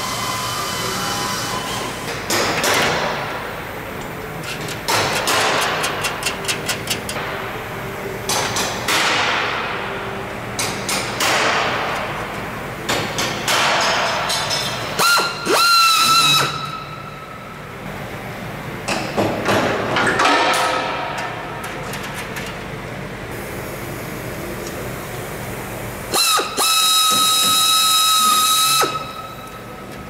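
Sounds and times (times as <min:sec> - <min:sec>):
pneumatic drill whining: 0:15.0 - 0:16.8, 0:26.1 - 0:29.4.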